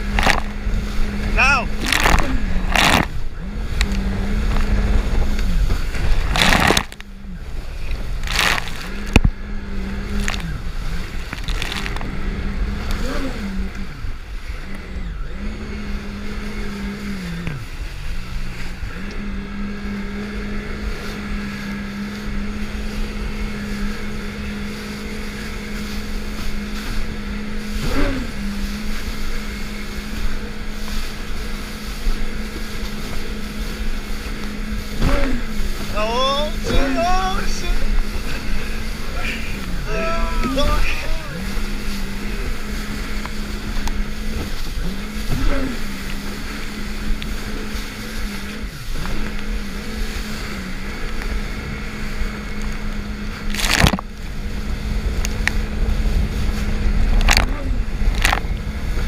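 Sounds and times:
jet ski engine droning: 0.0 - 59.0
water rushing and spraying: 20.7 - 59.0.

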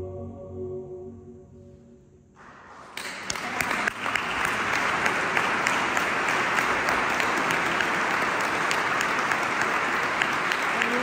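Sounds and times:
audience applause: 2.4 - 11.0.

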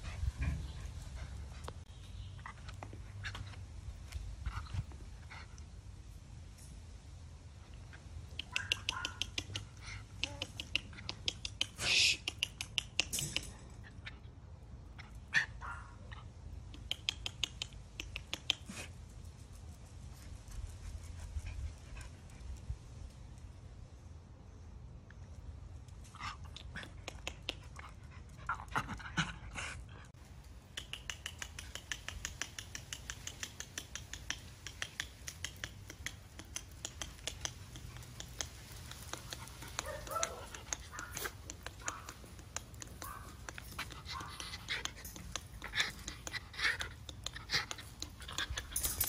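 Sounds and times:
dogs panting rapidly: 31.1 - 49.0.

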